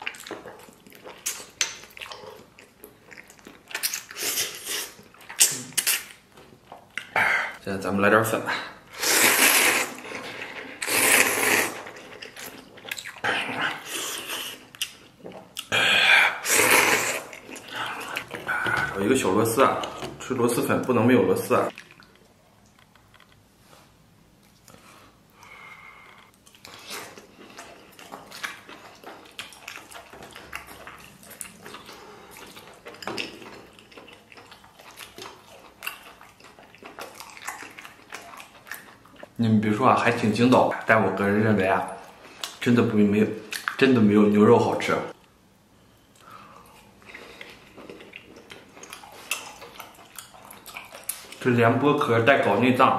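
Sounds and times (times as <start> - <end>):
wet chewing and mouth-smacking: 0.0 - 7.2, 9.5 - 15.7, 17.0 - 19.0, 21.7 - 23.4, 26.2 - 41.0, 43.4 - 43.9, 46.0 - 51.6
person slurping noodles: 8.9 - 12.1, 15.7 - 19.0
soft mouth sounds: 8.9 - 19.0.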